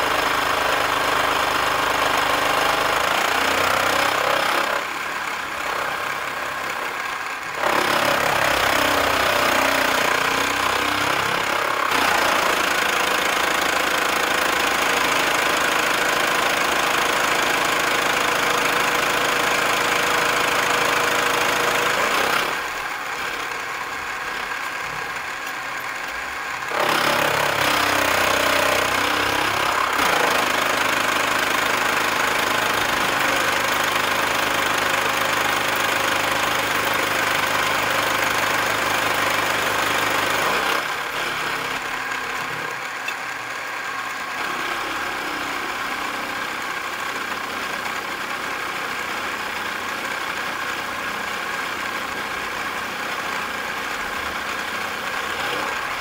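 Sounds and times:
milling cutter cutting metal: 0.0s - 43.3s
milling machine running: 0.1s - 47.9s.

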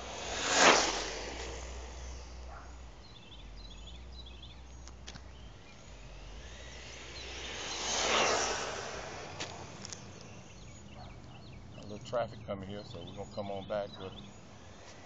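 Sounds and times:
rc car motor passing at speed: 0.0s - 15.0s
faint bird chirps: 2.0s - 8.7s, 9.6s - 15.0s.

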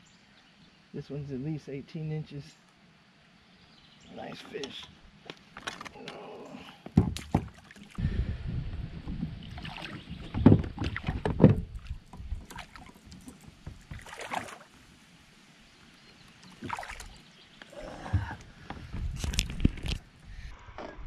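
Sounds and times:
thumps and knocks on kayak hull: 6.9s - 7.6s, 9.0s - 14.2s.

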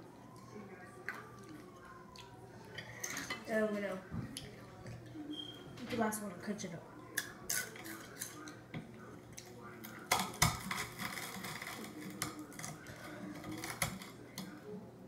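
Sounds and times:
chips being crushed: 7.2s - 8.5s, 9.4s - 14.5s.

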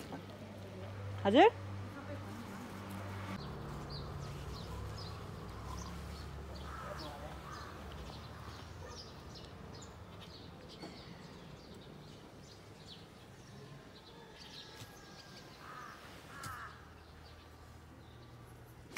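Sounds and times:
small birds chirping: 2.1s - 18.9s
rough bird calls: 3.4s - 11.7s, 14.6s - 17.4s.

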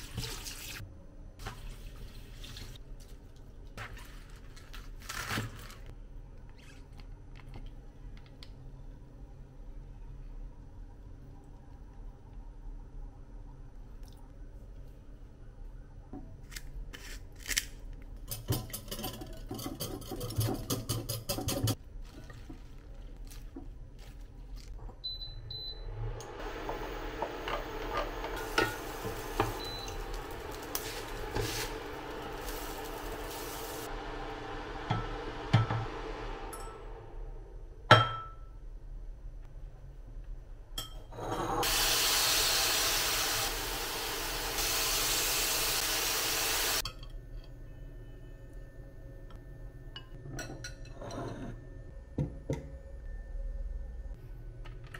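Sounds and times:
food sizzling in frying pan: 26.4s - 35.4s, 41.6s - 46.8s
wooden spatula scraping: 26.5s - 33.9s.

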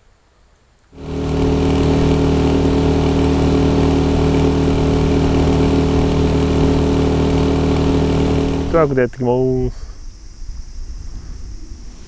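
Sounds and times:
outboard motor running: 1.0s - 8.9s.

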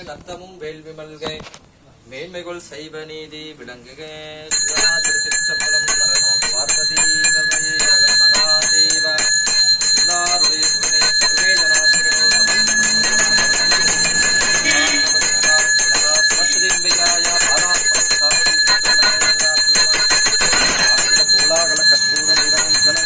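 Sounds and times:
hand bell ringing rapidly: 4.5s - 23.0s.

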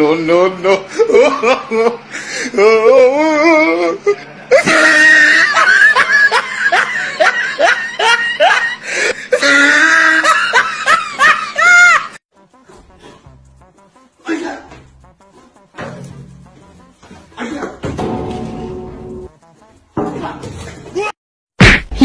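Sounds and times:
people laughing hard: 0.6s - 2.1s, 4.4s - 12.2s.

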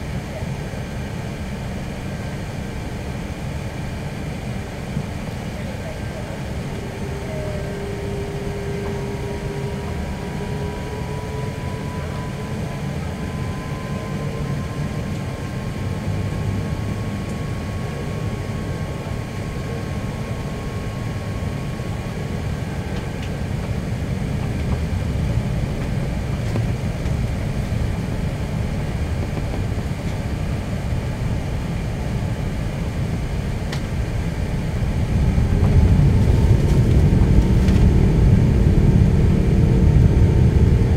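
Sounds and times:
low engine rumble in cabin: 0.0s - 40.9s
faint rising whine: 5.6s - 40.9s.

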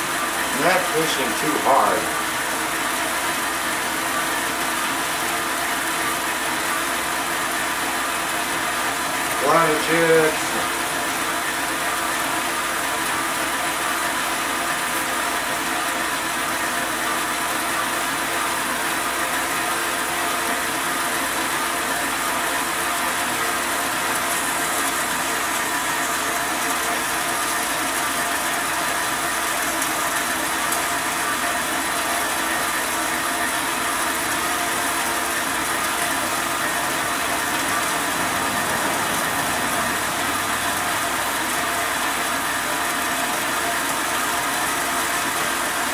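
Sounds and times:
band saw cutting metal: 0.0s - 11.7s, 21.2s - 45.8s.

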